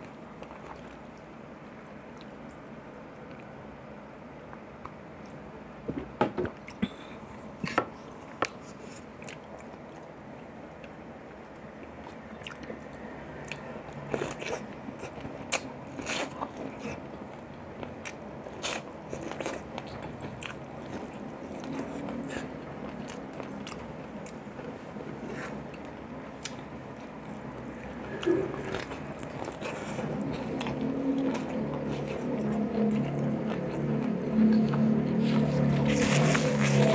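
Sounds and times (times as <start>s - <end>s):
man chewing corn: 8.3s - 36.9s.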